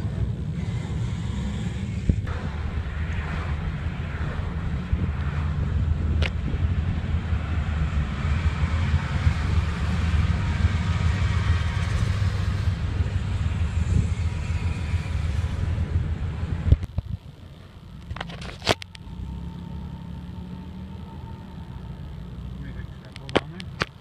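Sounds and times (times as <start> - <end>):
car road rumble: 0.0 - 24.0.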